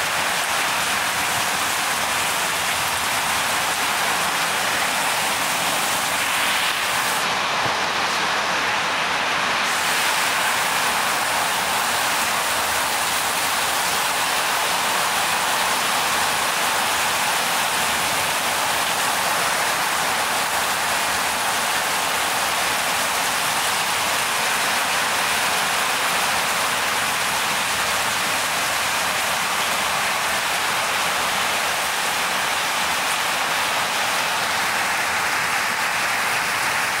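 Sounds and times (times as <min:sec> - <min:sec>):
heavy rain pouring: 0:00.0 - 0:37.0.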